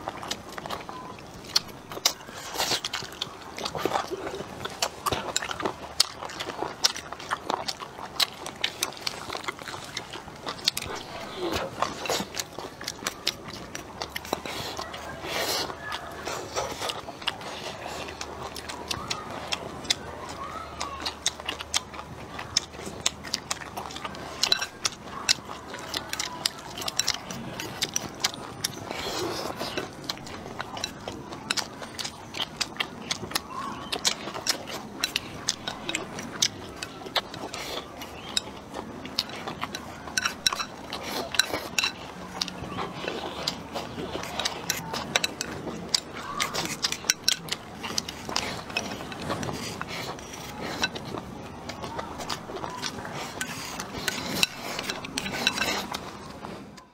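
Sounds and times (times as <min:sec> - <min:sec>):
chewing and biting food: 0:00.0 - 0:56.9.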